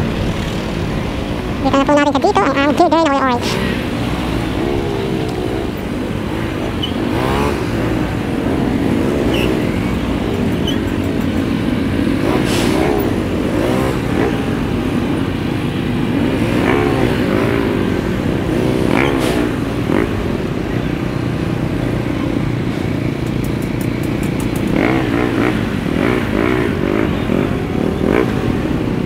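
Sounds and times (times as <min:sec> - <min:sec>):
motorcycle engine revving: 0:00.0 - 0:29.0
traffic rumble: 0:00.0 - 0:29.0.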